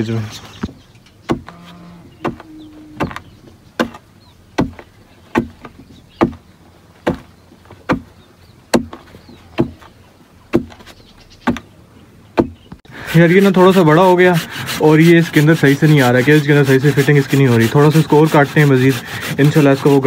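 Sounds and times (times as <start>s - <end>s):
digging tool thudding into stony soil: 2.2s - 4.0s, 4.6s - 6.4s, 7.0s - 8.1s, 8.7s - 9.9s, 10.5s - 11.6s.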